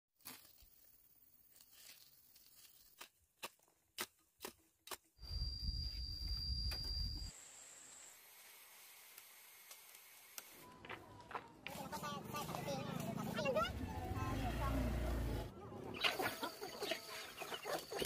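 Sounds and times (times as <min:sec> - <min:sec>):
thin high whine: 0:05.2 - 0:08.5.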